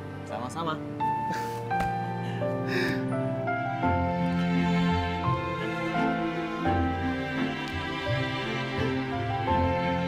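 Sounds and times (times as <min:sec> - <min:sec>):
soft sad background score: 0:00.0 - 0:10.0.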